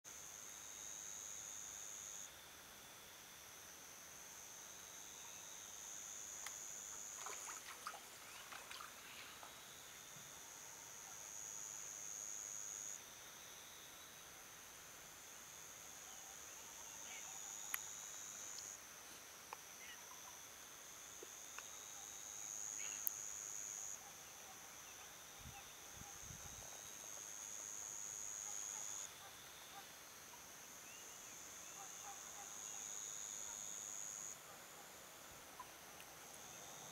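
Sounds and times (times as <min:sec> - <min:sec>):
insects droning: 0:00.1 - 0:36.9.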